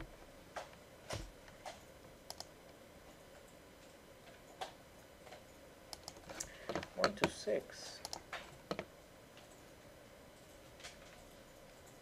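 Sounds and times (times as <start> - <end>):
mouse and keyboard clicks: 1.6 - 2.5, 4.5 - 7.3.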